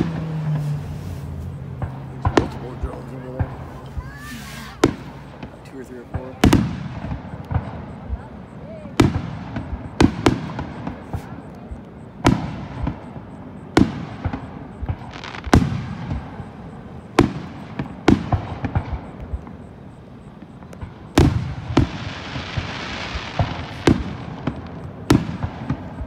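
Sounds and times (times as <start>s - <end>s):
firework shells bursting: 0.0s - 26.0s
hiss: 4.0s - 4.9s
low rumbling echo: 4.8s - 26.0s.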